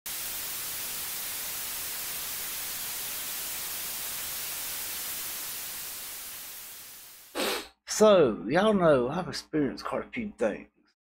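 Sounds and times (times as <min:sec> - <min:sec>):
static hiss: 0:00.1 - 0:07.7.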